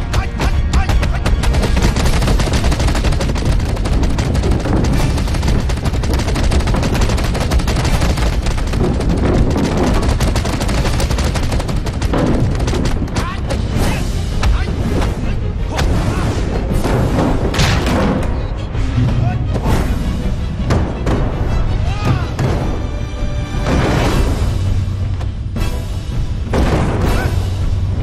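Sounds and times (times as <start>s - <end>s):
rapid punch impact effects: 0.8s - 13.8s.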